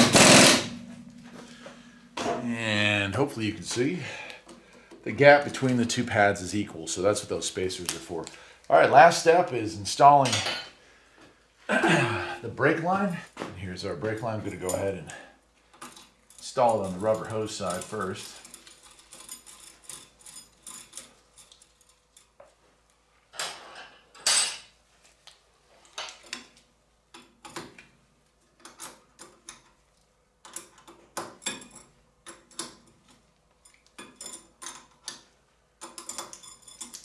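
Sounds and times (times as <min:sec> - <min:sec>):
wrench clinking on metal fitting: 0:15.8 - 0:21.5, 0:33.6 - 0:37.0.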